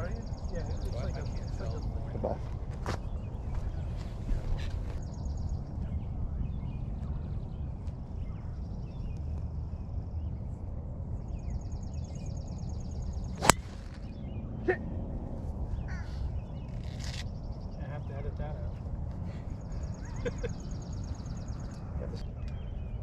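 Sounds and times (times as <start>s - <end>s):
golf club striking ball: 13.4s - 14.0s.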